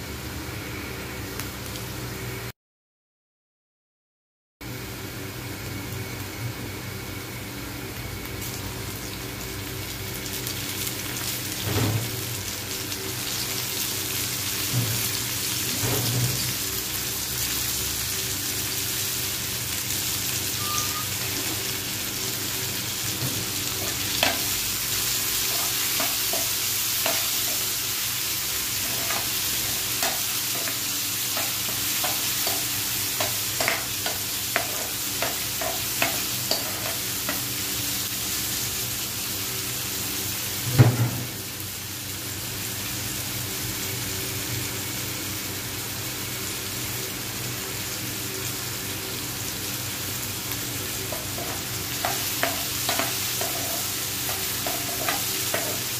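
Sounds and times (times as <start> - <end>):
vegetables sizzling in oil: 4.8 - 55.9
spoon scraping a pan: 51.1 - 55.9.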